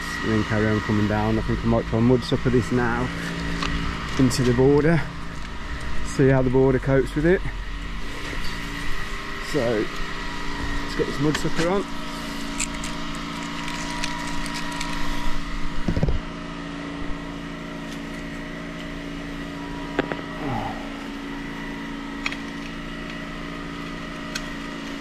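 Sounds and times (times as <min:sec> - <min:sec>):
pressure washer engine running: 0:00.0 - 0:25.0
metal parts knocking and clinking: 0:12.5 - 0:15.2.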